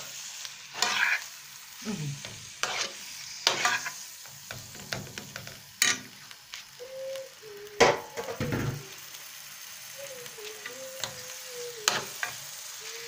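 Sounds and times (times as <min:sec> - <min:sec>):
meat sizzling in a pan: 0:00.0 - 0:13.0
utensil scraping a pan: 0:00.8 - 0:01.2, 0:02.5 - 0:04.0.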